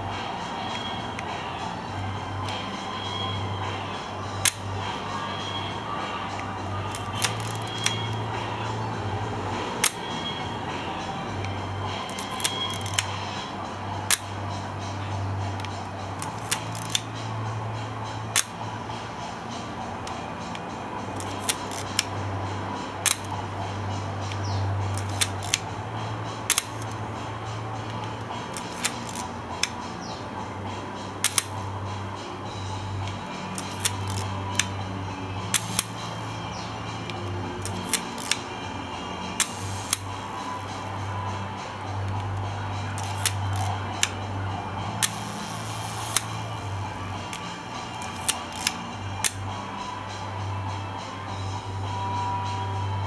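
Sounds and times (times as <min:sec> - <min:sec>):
camera shutter clicks: 0:06.9 - 0:08.1.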